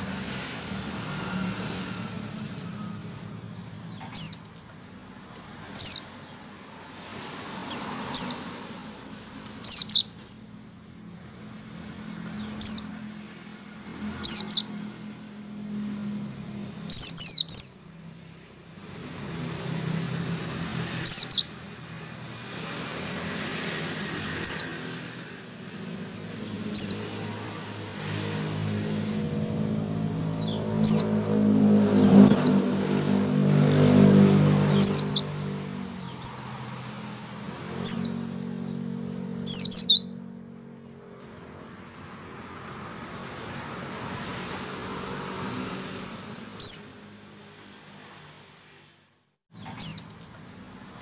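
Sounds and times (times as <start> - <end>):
bird giving sharp chirps: 2.7 - 4.5, 5.7 - 6.3, 7.6 - 8.4, 9.6 - 10.6, 12.3 - 13.0, 14.2 - 15.5, 16.8 - 17.9, 20.6 - 21.6, 24.1 - 24.9, 26.3 - 27.2, 30.2 - 31.2, 32.0 - 32.7, 34.4 - 36.6, 37.5 - 38.8, 39.4 - 40.3, 46.6 - 47.0, 49.5 - 50.2.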